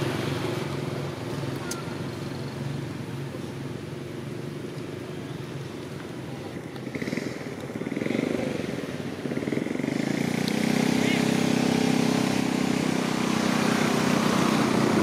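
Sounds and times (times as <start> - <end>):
motor engine running: 5.0 - 15.0.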